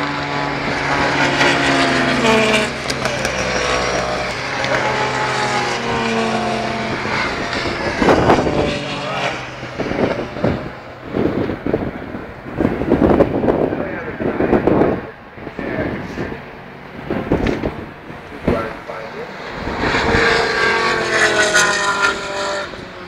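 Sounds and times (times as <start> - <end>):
racing engines passing: 0.0 - 23.0.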